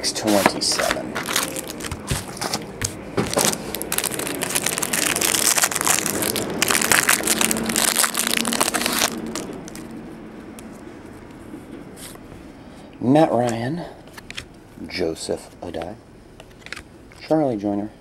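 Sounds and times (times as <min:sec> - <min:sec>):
cards being handled: 0:00.2 - 0:09.9, 0:14.1 - 0:14.5, 0:16.4 - 0:17.3
foil wrapper crinkling: 0:00.4 - 0:09.9.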